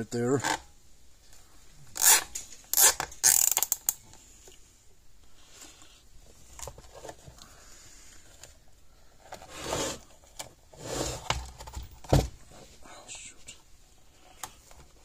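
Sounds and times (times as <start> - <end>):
cable ties ratcheting: 1.9 - 4.0.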